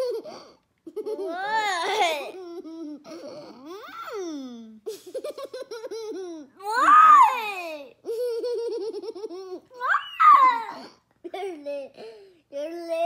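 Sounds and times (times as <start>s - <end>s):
girl giggling: 0.0s - 7.0s, 7.9s - 12.2s
girl squealing: 6.6s - 7.9s, 9.7s - 10.9s.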